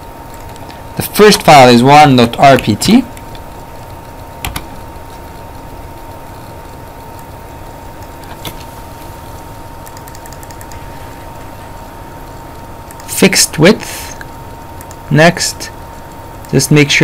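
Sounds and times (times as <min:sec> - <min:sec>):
thin high hum: 0:00.0 - 0:17.0
computer mouse clicks: 0:04.4 - 0:04.8, 0:09.8 - 0:10.8, 0:12.8 - 0:13.1, 0:14.2 - 0:15.0.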